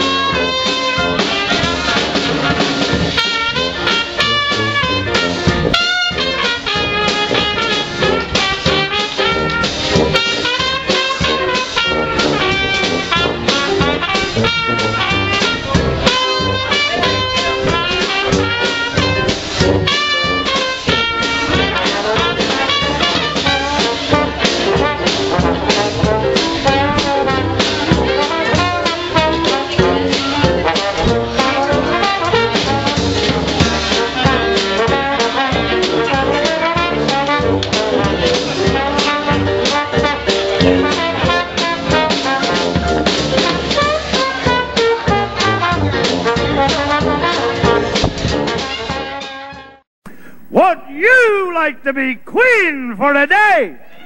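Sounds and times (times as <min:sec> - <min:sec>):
drum kit: 0:00.0 - 0:31.4
trombone: 0:00.0 - 0:50.9
trumpet: 0:00.0 - 0:54.0
tuba: 0:00.0 - 0:54.0.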